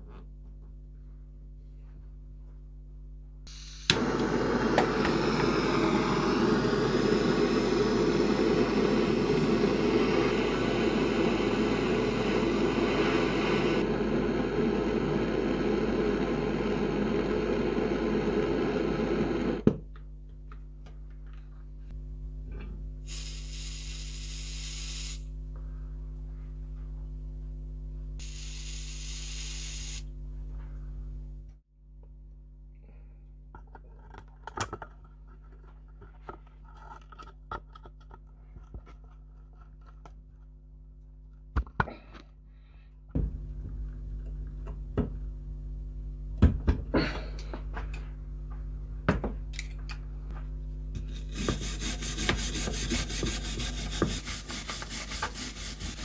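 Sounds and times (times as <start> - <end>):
blowtorch click: 3.5 - 19.6
blowtorch flame rushing: 3.5 - 19.6
aerosol can spraying: 23.1 - 25.2, 28.2 - 30.0, 51.3 - 56.0.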